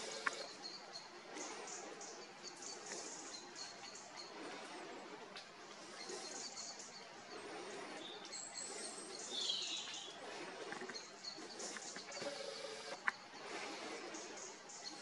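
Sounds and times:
faint outdoor background noise: 0.0s - 15.0s
high bird chirps: 8.0s - 10.2s.

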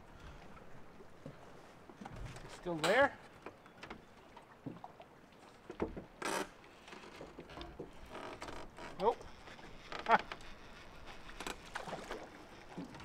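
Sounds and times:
fishing rod rubbing: 8.6s - 12.9s.

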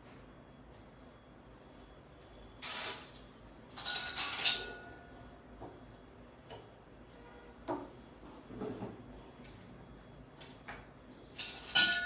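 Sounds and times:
short metallic ring: 11.4s - 12.0s.

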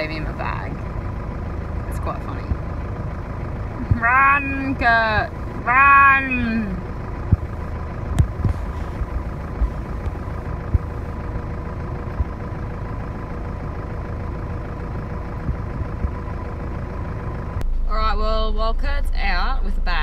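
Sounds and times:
faint steady whine: 0.0s - 20.0s
vehicle engine idling: 0.0s - 20.0s
short low thumps: 6.5s - 13.0s, 15.3s - 17.9s.

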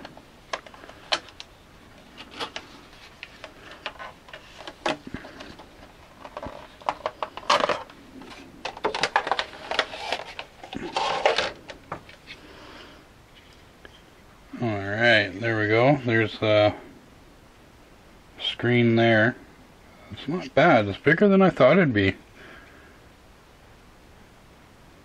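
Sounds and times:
plastic tray crackling and clicking: 2.2s - 12.2s.

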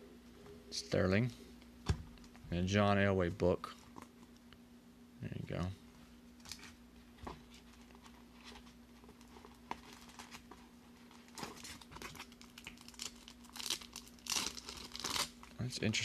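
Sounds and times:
faint steady hum: 0.0s - 16.0s
foil pack crinkling: 7.6s - 15.6s.

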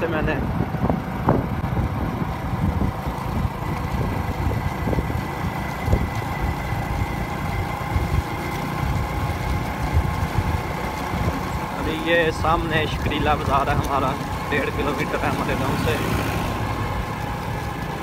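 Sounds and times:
motorcycle engine hum: 0.0s - 18.0s
wind and road noise: 0.0s - 18.0s.

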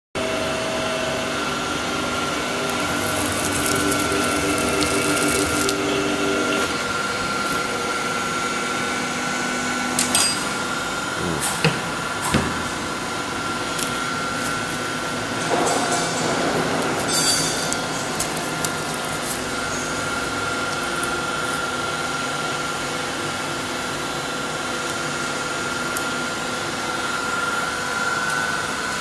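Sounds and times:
trimming machine motor hum: 1.0s - 10.0s.

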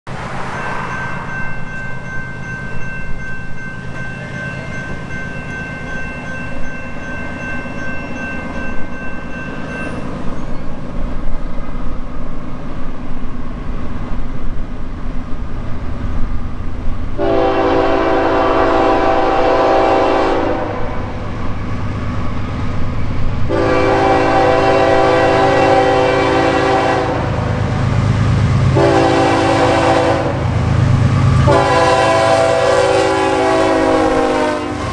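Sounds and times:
train engine and rail rumble: 0.1s - 34.9s
locomotive air horn blasts: 17.2s - 21.1s, 23.5s - 27.4s, 28.7s - 30.5s, 31.3s - 34.9s.

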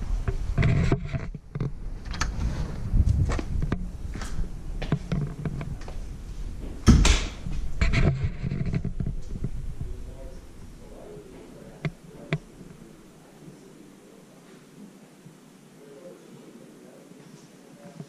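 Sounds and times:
knocks and bumps: 6.6s - 10.3s.

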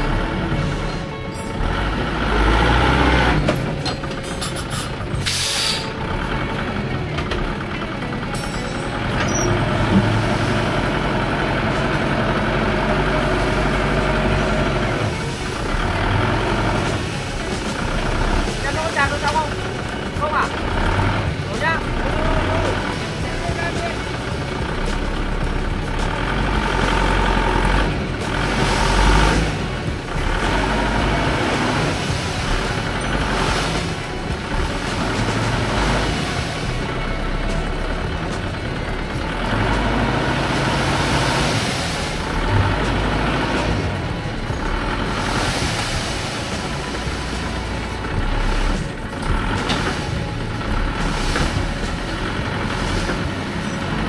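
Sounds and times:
heavy truck engine running: 0.0s - 54.0s
air brakes hiss: 4.5s - 6.0s.

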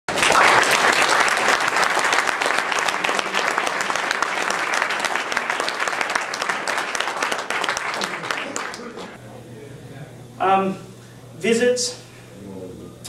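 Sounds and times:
audience applauding: 0.1s - 9.2s.

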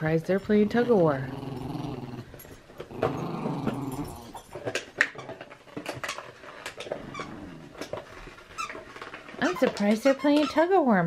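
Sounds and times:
dog growling: 0.8s - 4.8s, 6.8s - 8.1s.

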